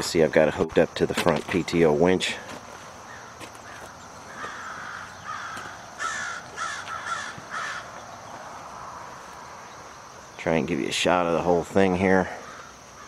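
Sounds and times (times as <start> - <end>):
crow cawing: 3.0 - 9.0, 12.3 - 13.0.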